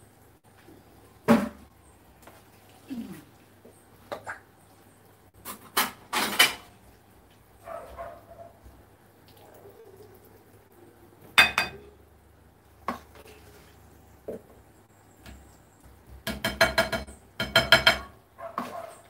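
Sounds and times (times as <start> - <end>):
spoon knocking on metal pot: 11.4 - 11.8, 16.2 - 18.2.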